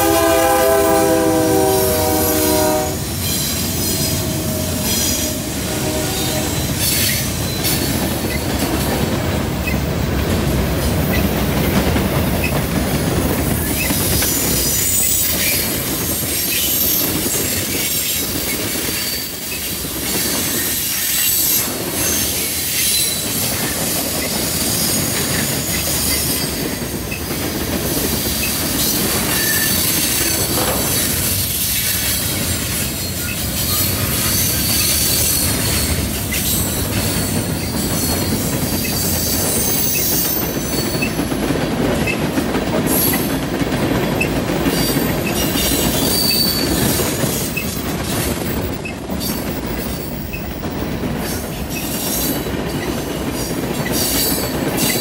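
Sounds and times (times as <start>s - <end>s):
train wheels rolling on rail: 0.0s - 55.0s
wheels clicking over rail joints: 6.6s - 55.0s
high-pitched wheel squeal: 29.3s - 30.4s, 44.7s - 47.8s.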